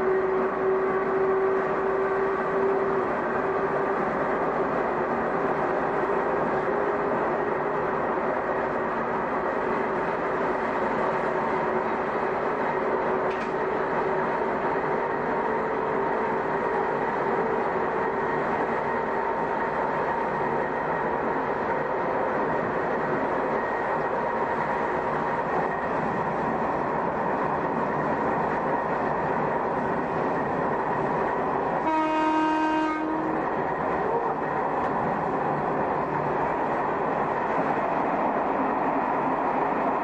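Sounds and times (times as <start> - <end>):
electric train rumbling: 0.0 - 40.0
train horn: 31.8 - 34.5.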